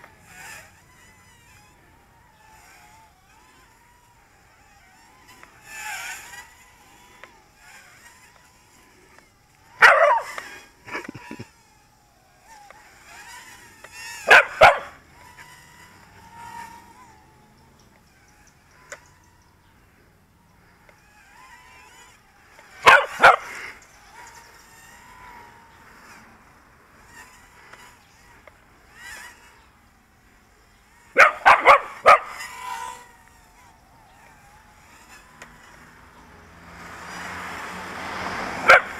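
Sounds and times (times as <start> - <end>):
drone motors whining: 0.0 - 38.9
small dog barking: 9.8 - 10.4, 14.3 - 15.0, 22.8 - 23.5, 31.2 - 32.4, 38.6 - 38.9.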